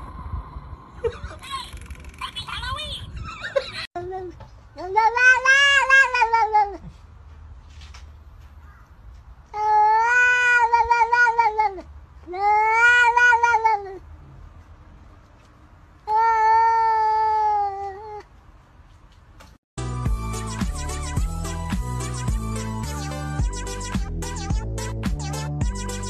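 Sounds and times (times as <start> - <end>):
cat meowing: 9.6 - 14.0.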